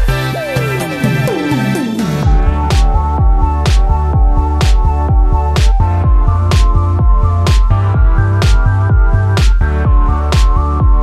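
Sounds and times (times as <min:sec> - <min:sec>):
held synth chords: 0:00.0 - 0:11.0
deep kick drums: 0:02.2 - 0:11.0.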